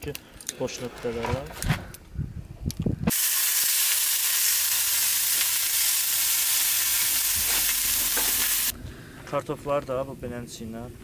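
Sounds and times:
steak sizzling in a frying pan: 3.1s - 8.7s.

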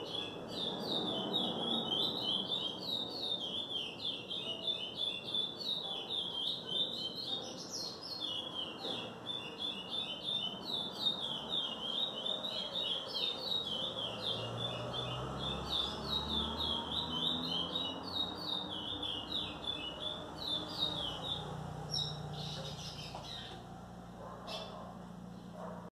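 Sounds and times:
songbird singing rapid chirps: 0.0s - 25.9s.

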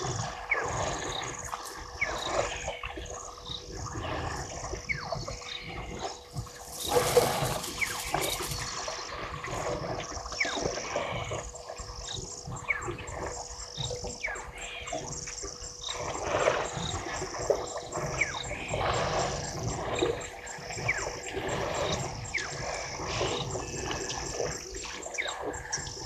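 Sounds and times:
water splashing and trickling: 0.0s - 11.2s
birds whistling calls: 4.9s - 9.0s.

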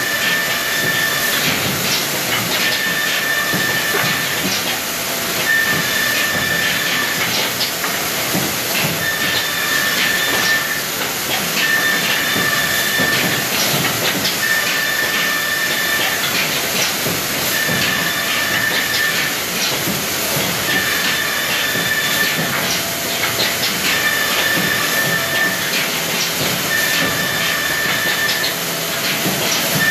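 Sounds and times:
high machine whine: 5.3s - 16.4s, 20.3s - 29.9s
woodworking machine hissing: 8.0s - 13.6s, 17.2s - 23.2s, 23.8s - 25.8s.

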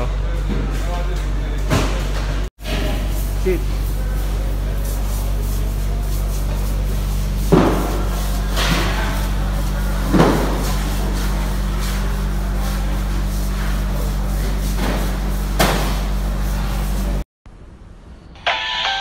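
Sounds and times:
market hall din: 0.0s - 19.0s
music: 18.4s - 19.0s.

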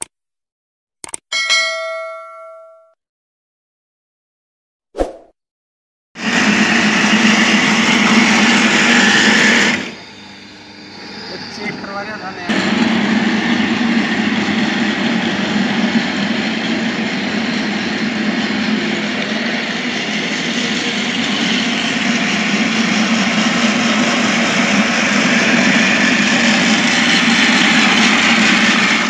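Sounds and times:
electric reel lawn mower whirring: 6.2s - 29.0s.

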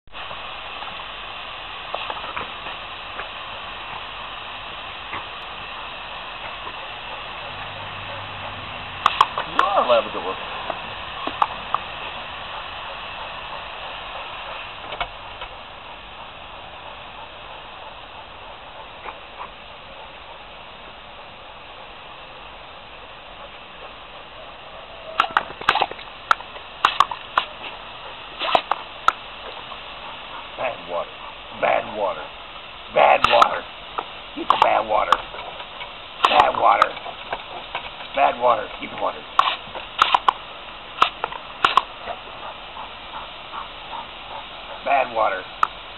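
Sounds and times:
hose nozzle spray hissing: 0.2s - 45.9s
dog snapping its jaws: 9.0s - 9.7s, 25.2s - 27.5s, 28.4s - 29.2s, 34.5s - 34.8s, 36.2s - 36.5s, 39.4s - 40.4s, 41.0s - 41.9s.

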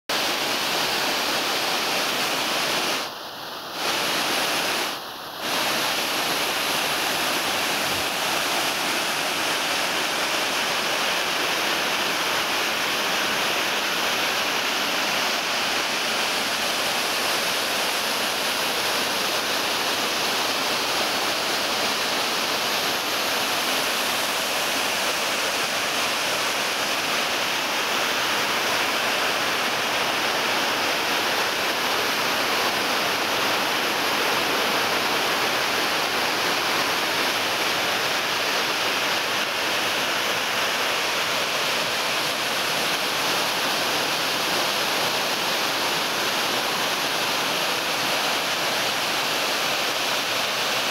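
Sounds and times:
waterfall rushing: 0.1s - 50.9s.

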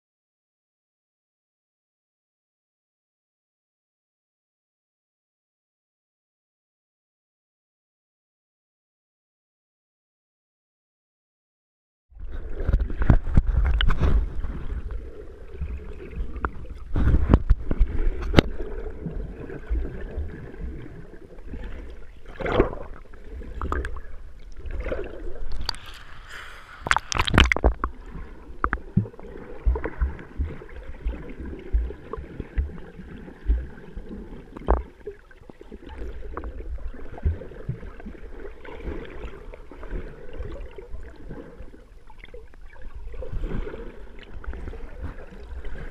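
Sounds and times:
water sloshing underwater: 12.1s - 45.9s
water splashing: 12.3s - 45.9s.

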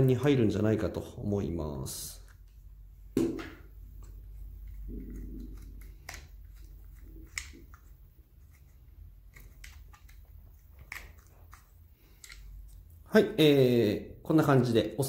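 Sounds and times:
soft handling noise: 2.0s - 13.1s.

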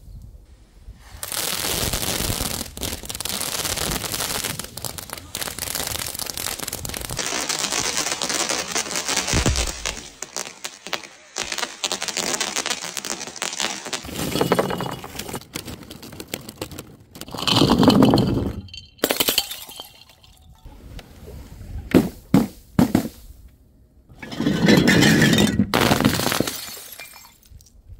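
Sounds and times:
glass breaking: 17.3s - 20.5s, 24.2s - 27.5s
glass clinking: 17.6s - 20.6s.

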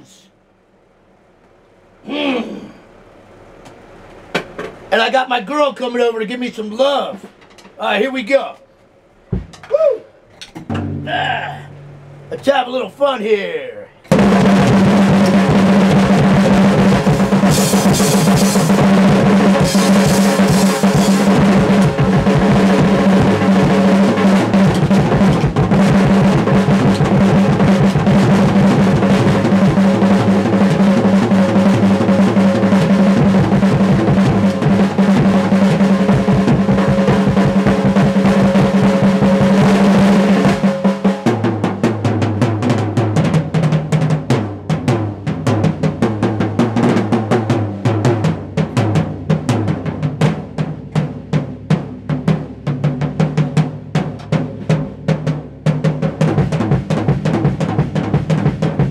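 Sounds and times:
drum kit solo: 10.6s - 12.7s, 14.1s - 58.9s.

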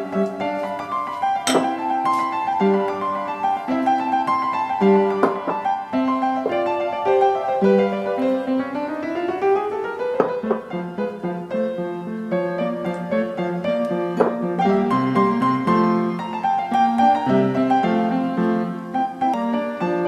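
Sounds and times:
solo piano classical music: 0.0s - 20.0s.

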